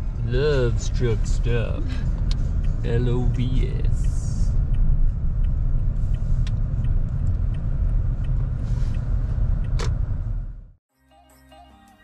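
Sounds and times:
car engine and tyre rumble: 0:00.0 - 0:10.8.

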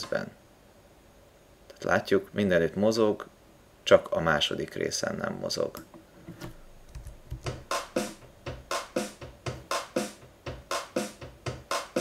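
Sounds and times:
low electronic beat: 0:06.9 - 0:12.0.

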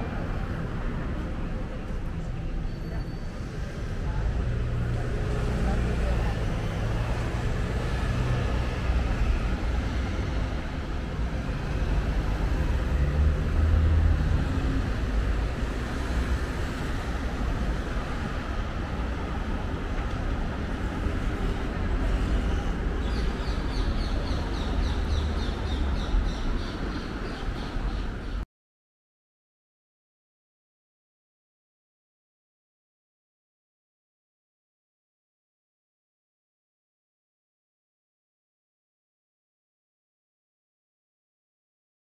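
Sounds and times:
cars and scooters passing: 0:00.0 - 0:28.4.

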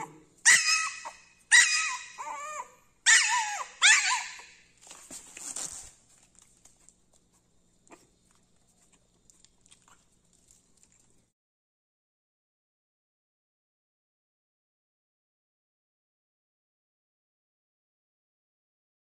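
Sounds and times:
puppy yipping and whining: 0:00.0 - 0:04.7.

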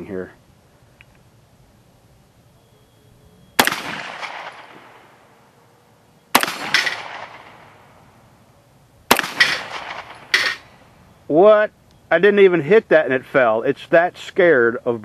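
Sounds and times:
pistol shots: 0:03.6 - 0:05.2, 0:06.3 - 0:08.0, 0:09.1 - 0:10.8.

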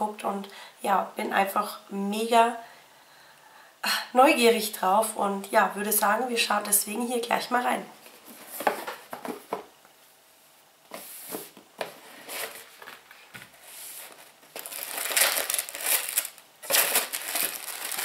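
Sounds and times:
packaging rustling and crinkling: 0:11.0 - 0:18.0.

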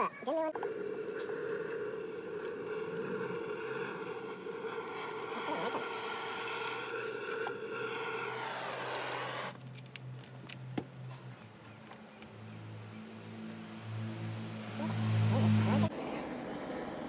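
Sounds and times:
gas torch hissing: 0:00.6 - 0:09.6.

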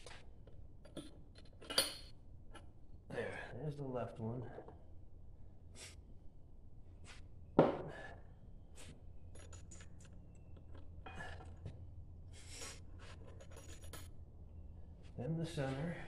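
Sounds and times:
small metal clicks and knocks: 0:09.3 - 0:10.9.

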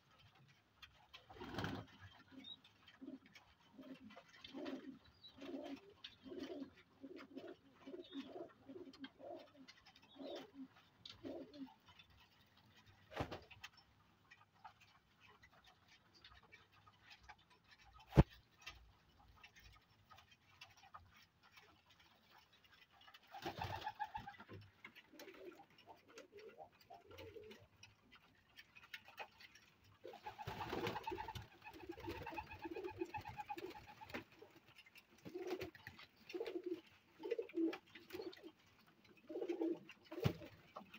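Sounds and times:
pigeons cooing: 0:01.3 - 0:12.4, 0:22.2 - 0:27.9, 0:29.2 - 0:40.9.

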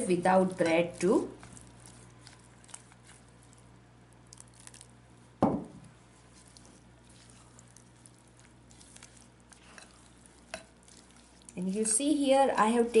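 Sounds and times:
spatula stirring wet batter: 0:00.0 - 0:05.4, 0:06.0 - 0:13.0
thump: 0:05.4 - 0:05.8.

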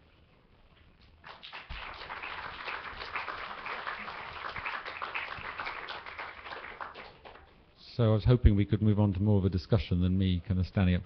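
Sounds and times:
audience applauding: 0:01.2 - 0:07.5.

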